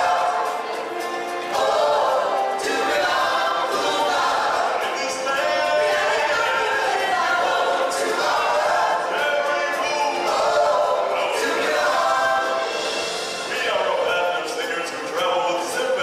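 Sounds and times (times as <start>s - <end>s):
choir singing: 0.0s - 16.0s.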